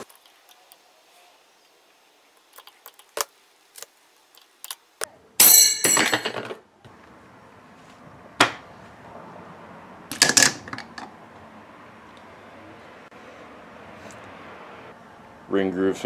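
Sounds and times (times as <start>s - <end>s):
snap ring metallic ring: 5.4s - 6.2s
metal parts clinking: 5.4s - 6.6s.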